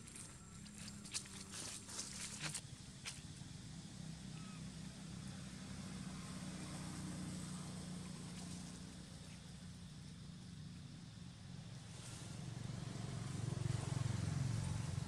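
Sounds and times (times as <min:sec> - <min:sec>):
rustle of dry leaves: 0:00.0 - 0:06.0, 0:10.8 - 0:15.0
distant engine hum: 0:00.0 - 0:15.0.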